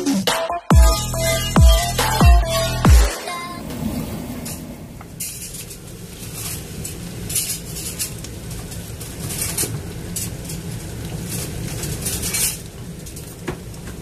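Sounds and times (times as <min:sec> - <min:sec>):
steady low hum: 0:03.2 - 0:05.6.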